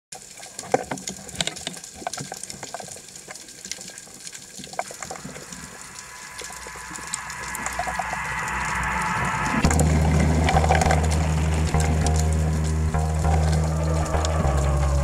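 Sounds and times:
water bubbling and gurgling: 0.1s - 15.0s
rushing hiss: 4.8s - 15.0s.

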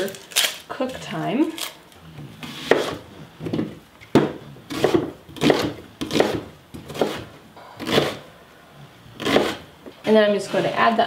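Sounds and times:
knife chopping on wooden board: 2.5s - 3.0s, 3.6s - 8.2s, 9.2s - 9.6s.

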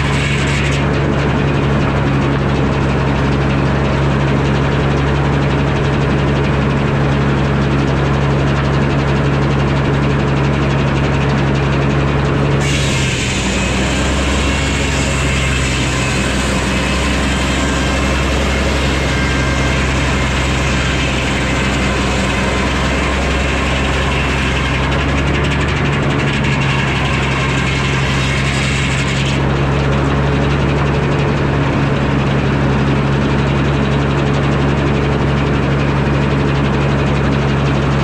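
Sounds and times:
circular saw cutting log: 0.0s - 5.2s, 12.2s - 34.7s
sawmill engine drone: 0.0s - 38.0s.

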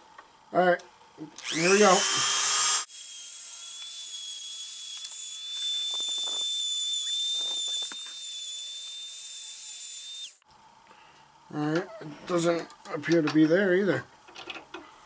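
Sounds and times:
rotary tool grinding steel: 1.4s - 10.4s
rotary tool whining: 1.4s - 10.4s.

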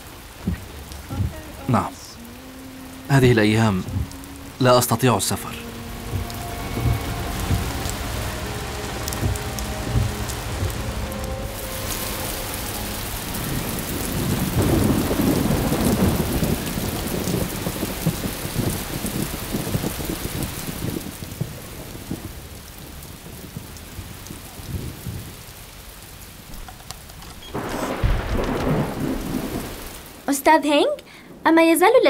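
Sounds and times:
rain falling: 0.0s - 32.0s
thunder rumble: 0.0s - 32.0s
low thump: 3.8s - 4.4s, 6.1s - 12.1s.

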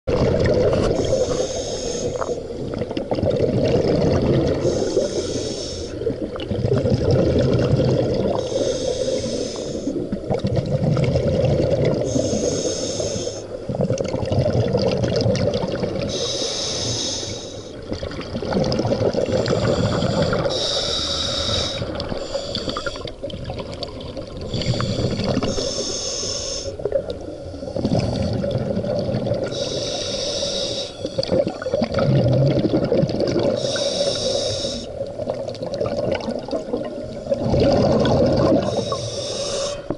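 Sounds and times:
bubbling on exhale: 0.1s - 39.9s
regulator hiss on inhale: 0.9s - 2.5s, 4.6s - 6.1s, 8.4s - 10.1s, 12.1s - 13.6s, 16.1s - 17.8s, 19.3s - 23.2s, 24.4s - 28.5s, 29.4s - 31.3s, 33.5s - 35.1s, 38.6s - 39.9s.

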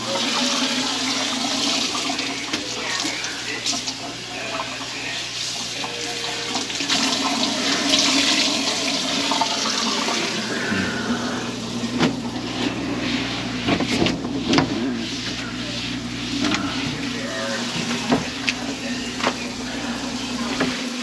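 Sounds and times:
tap water running into sink: 0.0s - 10.7s, 16.4s - 19.4s.

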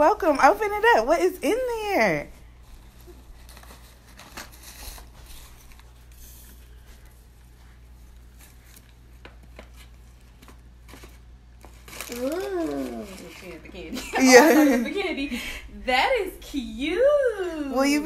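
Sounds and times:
tissue paper rustling: 2.2s - 15.0s.

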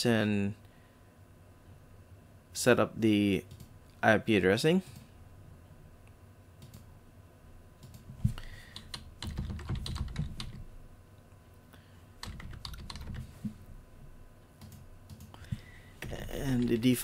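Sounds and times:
computer keyboard typing: 8.7s - 10.6s, 12.2s - 13.3s, 14.6s - 15.4s.

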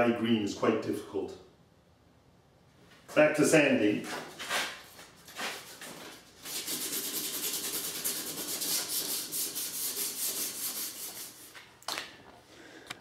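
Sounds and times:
sandpaper rubbing on metal: 4.4s - 11.6s.

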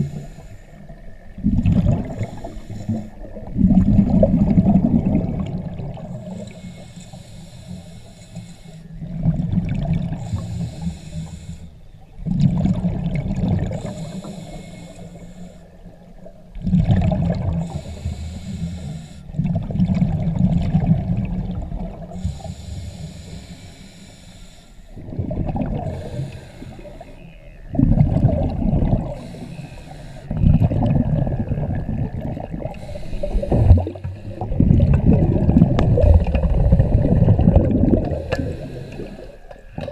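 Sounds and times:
exhaled bubbles rushing: 1.4s - 6.2s, 9.0s - 10.4s, 12.2s - 13.9s, 16.5s - 17.8s, 19.4s - 22.2s, 25.0s - 26.3s, 27.7s - 29.4s, 30.3s - 39.9s.

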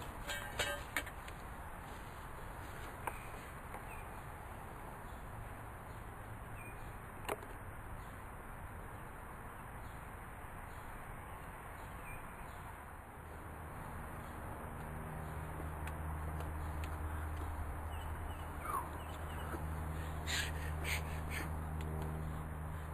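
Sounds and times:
outdoor background noise: 0.0s - 22.9s.

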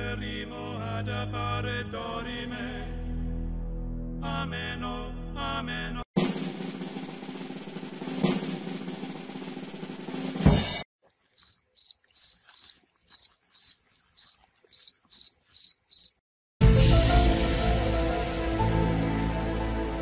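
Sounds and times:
background music: 0.0s - 6.0s, 16.6s - 20.0s
drum roll: 6.2s - 10.8s
cricket chirping sound effect: 11.1s - 16.2s.

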